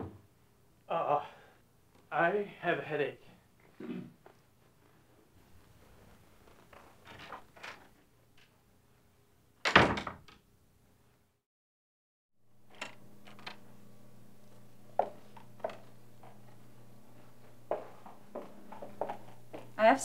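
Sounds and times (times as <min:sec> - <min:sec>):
door slamming: 0:09.7 - 0:10.3
low room hum: 0:12.5 - 0:20.0.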